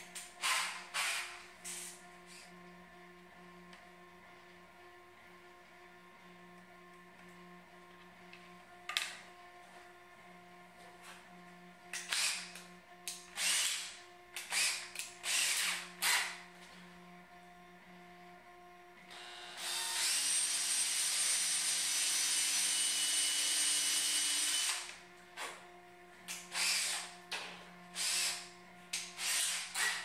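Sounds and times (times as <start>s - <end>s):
cordless drill running: 0.0s - 2.4s, 11.9s - 16.7s, 19.1s - 25.5s, 26.3s - 30.0s.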